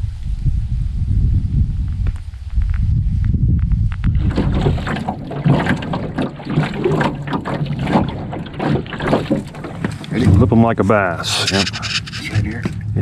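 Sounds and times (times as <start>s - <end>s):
wind rumble on microphone: 0.0s - 13.0s
water slapping metal hull: 4.0s - 12.9s
oars splashing: 4.2s - 12.8s.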